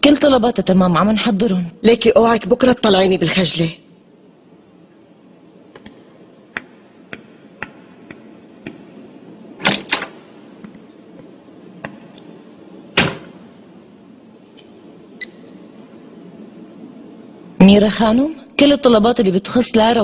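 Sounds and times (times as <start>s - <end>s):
glass-panelled door opening and shutting: 9.6s - 10.2s, 12.9s - 13.4s.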